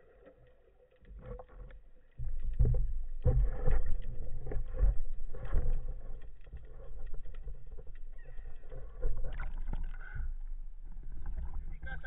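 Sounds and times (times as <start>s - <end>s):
muffled water sloshing: 0.0s - 12.0s.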